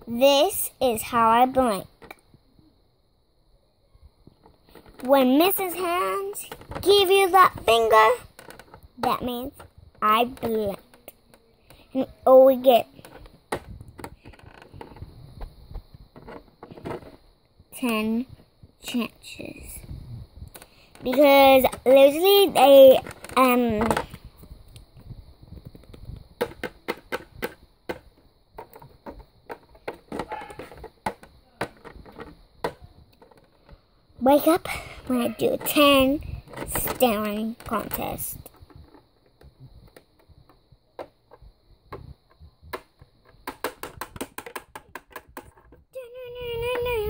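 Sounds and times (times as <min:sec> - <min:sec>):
plastic toy clicks and taps: 0:25.6 - 0:33.5, 0:42.7 - 0:45.8
handling clicks and taps: 0:35.4 - 0:45.8.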